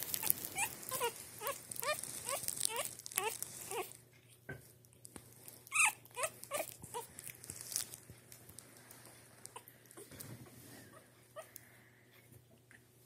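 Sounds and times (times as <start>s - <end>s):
puppy squeaking and whimpering: 0.0s - 4.0s, 5.6s - 7.9s.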